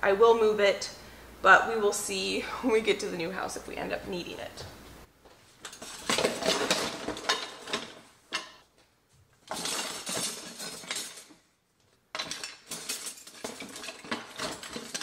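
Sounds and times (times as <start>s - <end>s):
metal utensils clinking: 5.6s - 8.6s, 9.5s - 11.4s, 12.1s - 15.0s.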